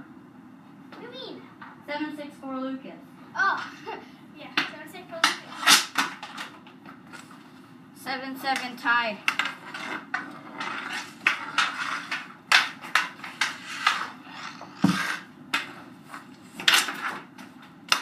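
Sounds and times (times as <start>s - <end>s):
hockey sticks clacking on concrete: 3.5s - 7.4s, 8.4s - 18.0s.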